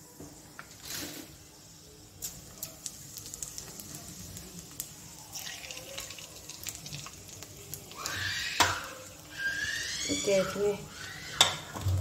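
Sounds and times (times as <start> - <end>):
seeds sizzling in hot oil: 0.0 - 12.0
crackles and pops: 2.1 - 10.2.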